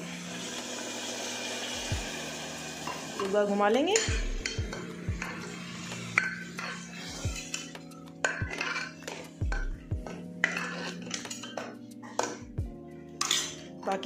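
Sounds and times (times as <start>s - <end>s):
metal ladle scraping a pot: 3.9s - 13.8s.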